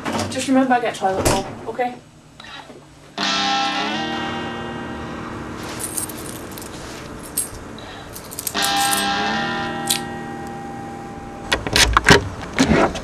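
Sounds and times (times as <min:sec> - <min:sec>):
guitar chord strummed: 0:03.2 - 0:05.7, 0:08.6 - 0:11.5.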